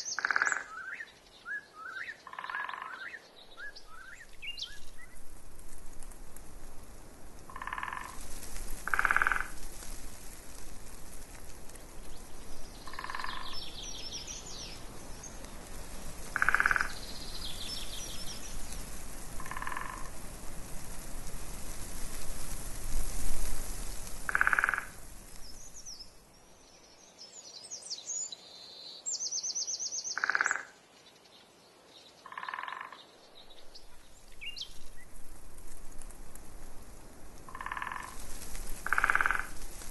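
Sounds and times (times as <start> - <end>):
frog croaking: 0.1 - 0.8, 2.2 - 3.1, 7.5 - 8.2, 8.8 - 9.6, 12.9 - 13.6, 16.3 - 17.0, 19.4 - 20.1, 24.3 - 25.0, 30.2 - 30.8, 32.2 - 33.0, 37.5 - 38.2, 38.8 - 39.6
small birds trilling: 12.0 - 20.1.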